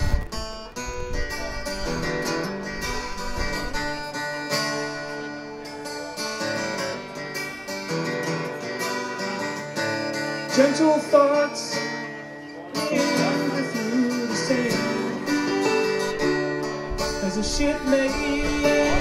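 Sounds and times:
acoustic guitar strumming: 0.0s - 19.0s.

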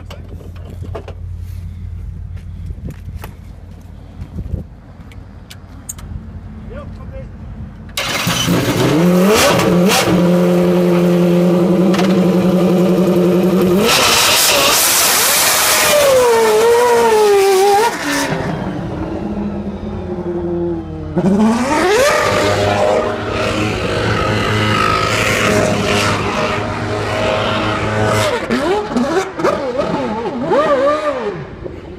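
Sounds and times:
race car engine revving: 8.0s - 31.9s.

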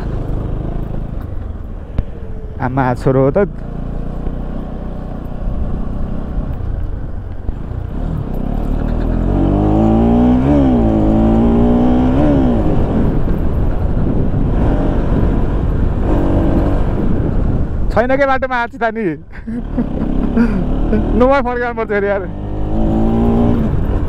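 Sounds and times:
motorcycle engine and road rumble: 0.0s - 24.0s
pitched engine drone: 7.6s - 17.4s, 19.4s - 24.0s.

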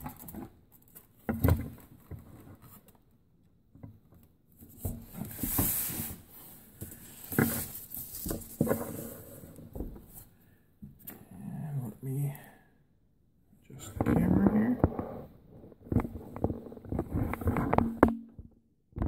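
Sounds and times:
knocks and bumps of handling: 15.6s - 19.0s.

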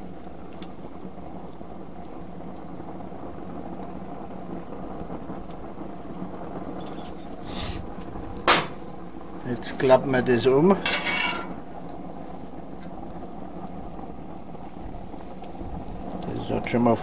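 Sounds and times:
gas grill burners humming: 0.0s - 17.0s
sharp knock: 8.5s - 8.8s.

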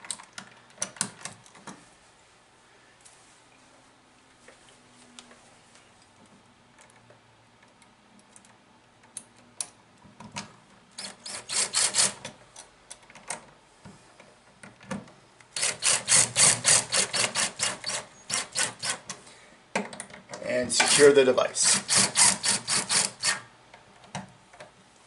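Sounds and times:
impact driver rattling bursts: 11.0s - 12.2s, 15.6s - 19.0s, 20.8s - 23.4s.

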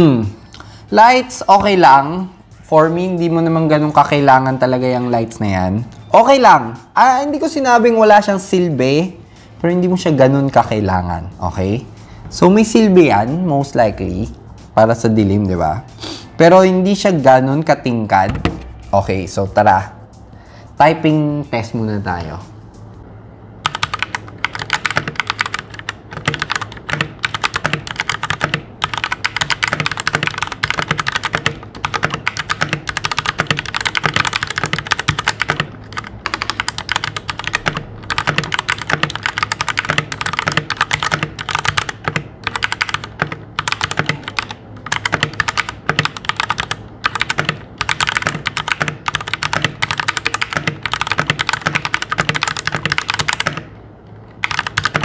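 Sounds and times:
mechanical keyboard keystroke clacks: 23.7s - 53.7s, 54.4s - 55.0s.

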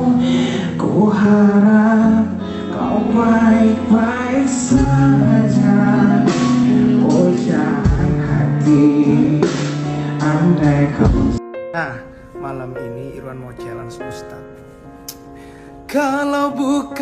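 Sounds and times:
electric guitars: 0.0s - 11.4s
keyboard playing: 0.0s - 17.0s.

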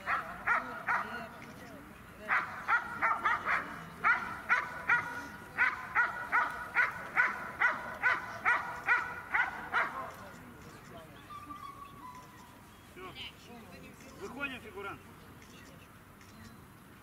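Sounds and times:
dog barking: 0.1s - 1.2s, 2.3s - 10.1s.

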